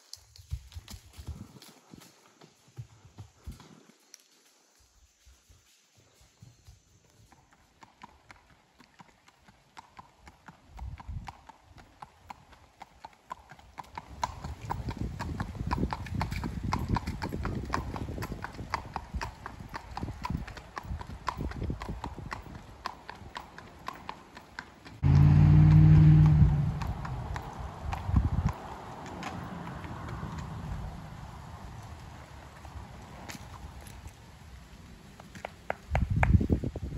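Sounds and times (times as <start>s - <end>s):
horse hooves on pavement: 0.0s - 4.4s, 6.0s - 36.9s
loud low hum: 25.0s - 27.8s.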